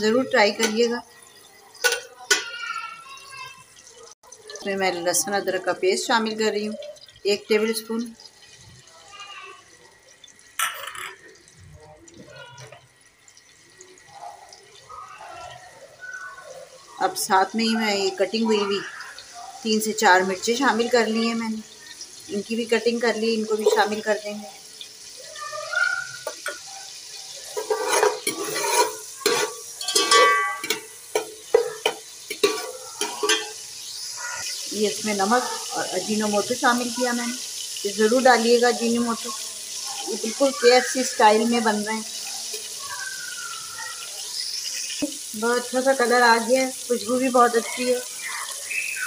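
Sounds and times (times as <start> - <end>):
spices sizzling in oil: 0.0 - 49.0
metal spoon scraping pot: 27.4 - 33.6
ringing clang of pot: 29.3 - 30.9.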